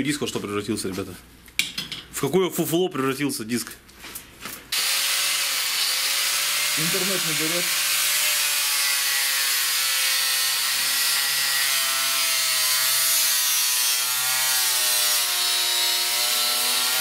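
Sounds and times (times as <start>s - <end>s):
angle grinder motor whine: 4.8s - 13.0s.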